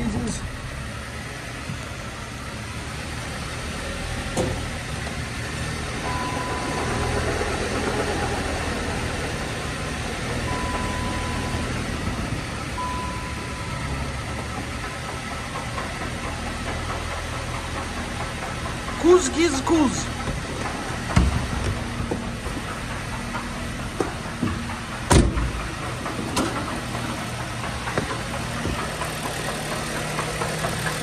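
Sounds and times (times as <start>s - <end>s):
car engine idling: 0.0s - 31.0s.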